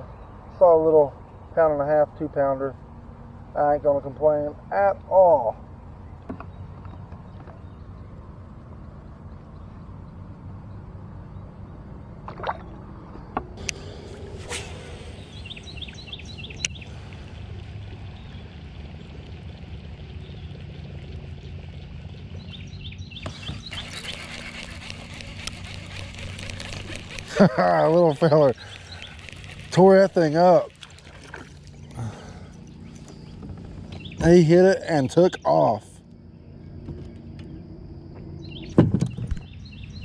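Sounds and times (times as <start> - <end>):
water lapping against kayak: 12.2 - 34.0.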